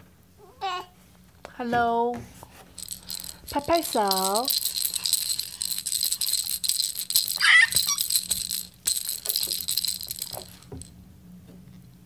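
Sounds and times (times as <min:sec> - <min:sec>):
toy rattle shaken: 0:02.7 - 0:10.9.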